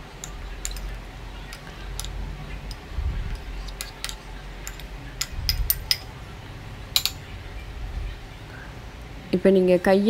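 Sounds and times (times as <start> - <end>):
spoon clinking against glass bowl: 0.2 - 2.8, 3.7 - 6.1
low rumble of handling: 0.3 - 8.4.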